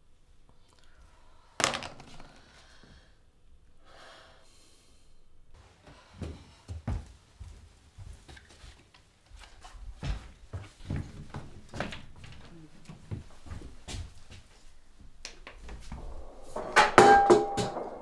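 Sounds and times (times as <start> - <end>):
heavy footsteps on floor: 5.6 - 8.8, 9.8 - 16.8
sharp knock: 16.5 - 18.0.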